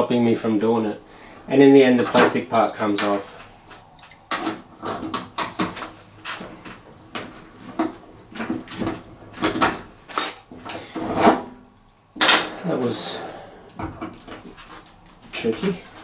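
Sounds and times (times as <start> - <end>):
wrench clinking on sheet metal: 9.4 - 10.9, 12.2 - 12.6.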